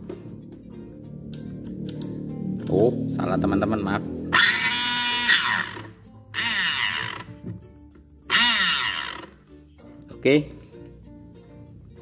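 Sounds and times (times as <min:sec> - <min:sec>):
small electric motor whirring: 0:04.3 - 0:07.3, 0:08.3 - 0:09.4.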